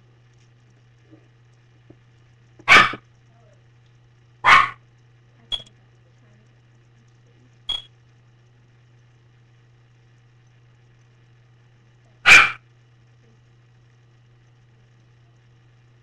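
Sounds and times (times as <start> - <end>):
faint low hum: 0.0 - 16.0
dog barking: 2.6 - 3.0, 4.4 - 4.8, 12.2 - 12.6.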